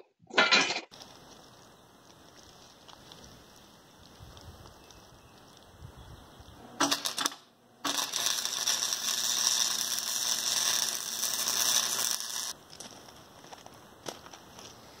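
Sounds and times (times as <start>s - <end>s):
arc welding crackling hiss: 6.8s - 12.9s.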